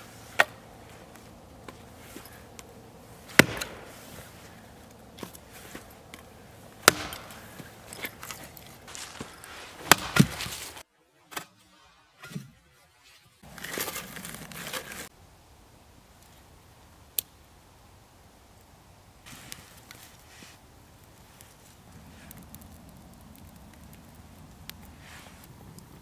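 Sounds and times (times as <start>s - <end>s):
rustling: 0.0s - 10.9s, 13.0s - 15.1s
hatchet chopping firewood: 0.2s - 11.5s.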